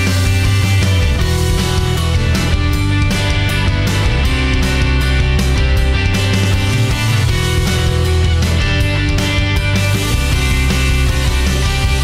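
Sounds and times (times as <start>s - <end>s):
loud rock music: 0.0s - 12.0s.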